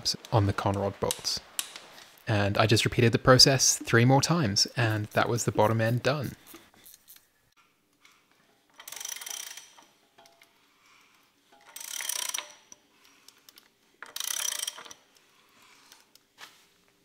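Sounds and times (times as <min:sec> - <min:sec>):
socket ratchet clicking: 0:08.8 - 0:09.9, 0:11.6 - 0:12.7, 0:14.0 - 0:15.0.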